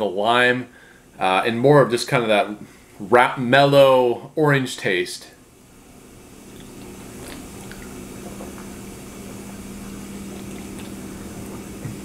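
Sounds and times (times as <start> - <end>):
dishwasher humming: 5.8 - 12.0.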